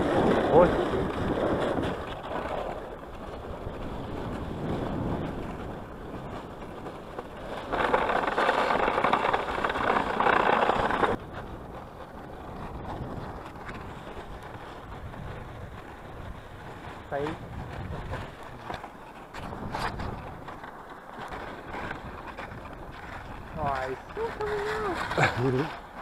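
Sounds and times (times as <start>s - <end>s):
wind on microphone: 0.0s - 26.0s
rough scraping: 6.3s - 11.4s, 12.6s - 26.0s.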